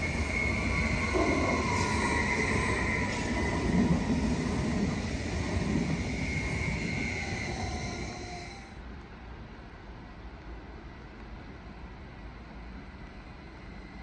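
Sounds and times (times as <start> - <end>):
train wheels rumbling on rails: 0.0 - 9.4.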